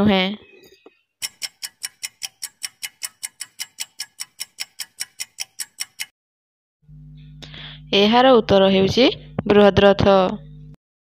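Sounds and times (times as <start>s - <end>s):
clock ticking: 1.2s - 6.1s.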